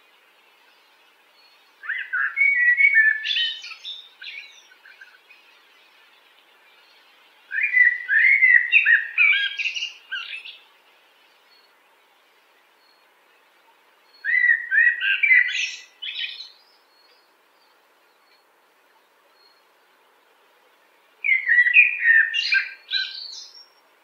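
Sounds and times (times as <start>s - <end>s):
blackbird singing: 0.6s - 10.7s, 14.0s - 19.8s, 21.2s - 23.8s.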